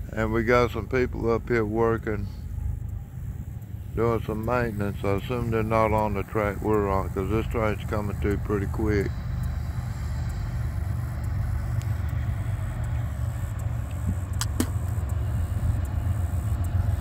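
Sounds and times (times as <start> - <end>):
diesel locomotive rumble: 0.0 - 17.0
short clicks: 11.2 - 15.2.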